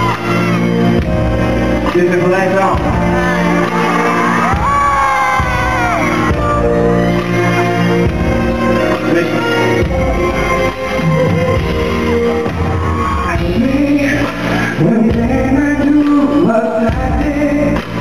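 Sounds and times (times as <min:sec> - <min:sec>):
live pop band music: 0:00.0 - 0:18.0
man singing amplified vocals: 0:13.2 - 0:18.0.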